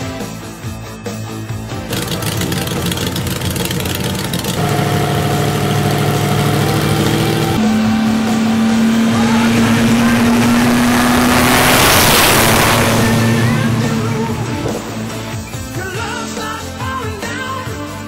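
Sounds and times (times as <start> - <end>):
propeller aircraft engine: 0.0 - 16.0
background music: 0.0 - 18.0.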